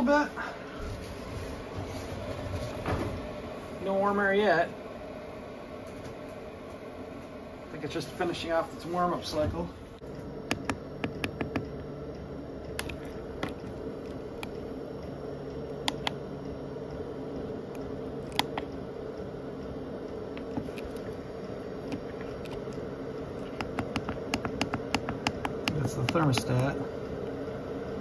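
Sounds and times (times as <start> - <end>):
heater fan hum: 0.0 - 28.0
sharp clicks: 15.8 - 16.2.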